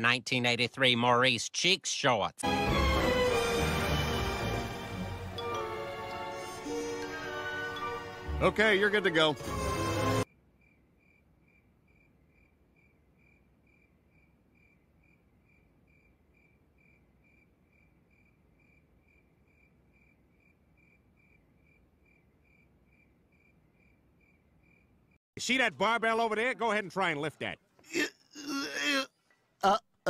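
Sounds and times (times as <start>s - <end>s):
crickets chirping: 10.3s - 25.2s.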